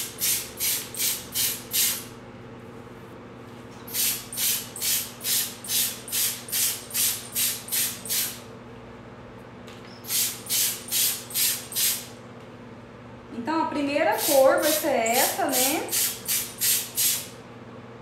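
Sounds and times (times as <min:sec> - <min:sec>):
pump sprayer hissing puffs: 0:00.0 - 0:02.1, 0:03.9 - 0:08.4, 0:10.0 - 0:12.1, 0:14.2 - 0:17.3.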